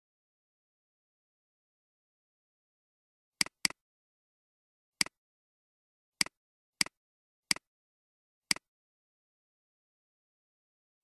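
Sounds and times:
computer mouse clicks: 3.4s - 3.8s, 6.2s - 7.7s.

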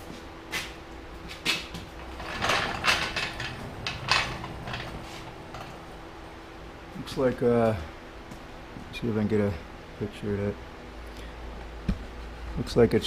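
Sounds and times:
metal stand clanking and scraping: 2.0s - 6.4s.

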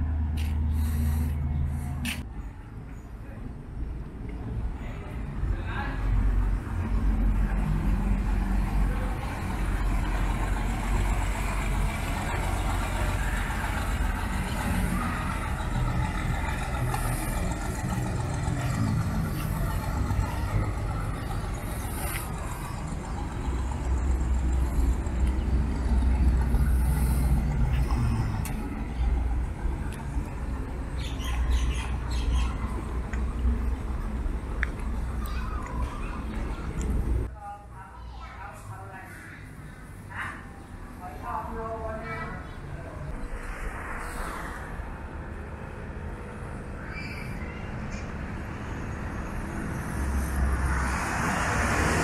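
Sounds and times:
outdoor noise: 0.0s - 52.0s
boat engine rumbling: 6.3s - 37.3s.

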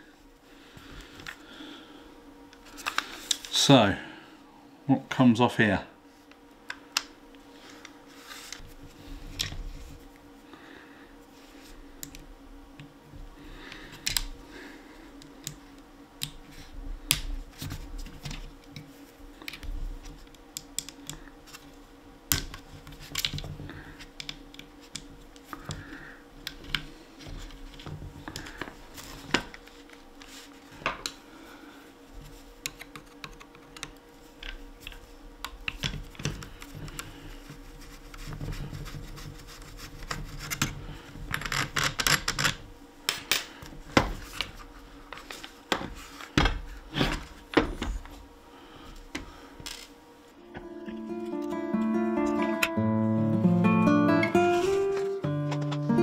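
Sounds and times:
faint steady hum: 0.0s - 56.0s
clicks and knocks of handling parts: 17.1s - 21.7s, 32.6s - 37.1s.

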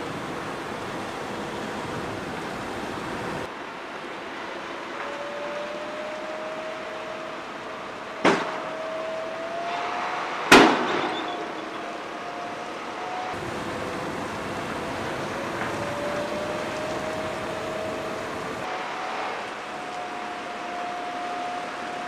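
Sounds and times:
truck engine running: 0.0s - 3.5s, 13.4s - 18.7s.

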